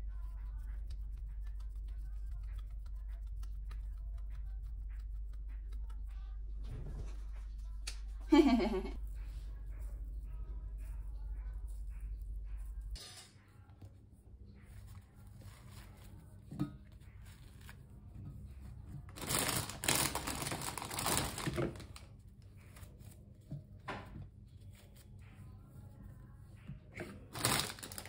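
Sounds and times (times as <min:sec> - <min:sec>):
rustling and crinkling: 0:14.5 - 0:26.0, 0:26.6 - 0:28.0.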